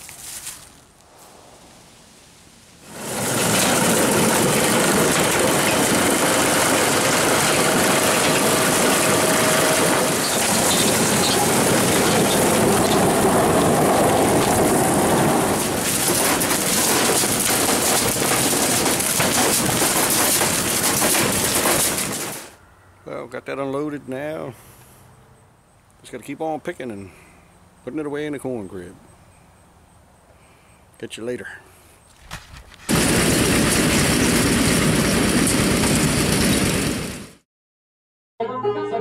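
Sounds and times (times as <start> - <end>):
motor running: 3.0 - 13.8.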